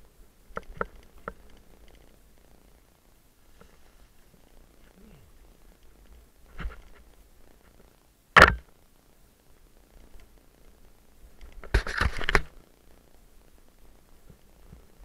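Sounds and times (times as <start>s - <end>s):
bike knocks and rattles: 8.4s - 8.7s.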